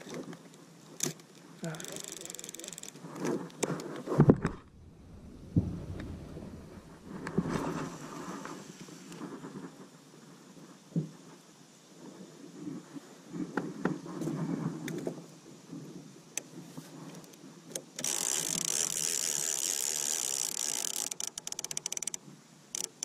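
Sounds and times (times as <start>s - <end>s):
fishing reel clicking rapidly: 1.6s - 3.0s, 18.0s - 23.0s
fishing reel whirring: 1.6s - 3.0s, 18.0s - 23.0s.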